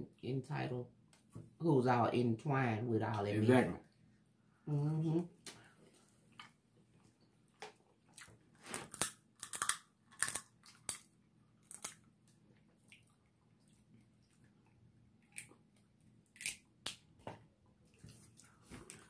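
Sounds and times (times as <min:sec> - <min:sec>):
crab shells cracking by hand: 0:08.7 - 0:12.1, 0:16.2 - 0:17.1.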